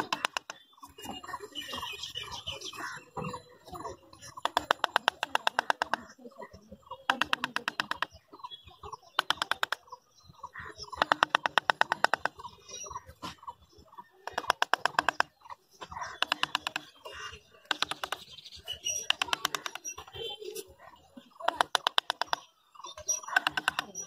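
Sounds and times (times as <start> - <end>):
faint bird chirps: 0.0 - 24.0
rapid clicking bursts: 4.2 - 6.1, 7.1 - 8.2, 9.2 - 9.9, 10.9 - 12.5, 14.3 - 15.4, 16.0 - 20.2, 21.4 - 22.5, 23.2 - 24.0.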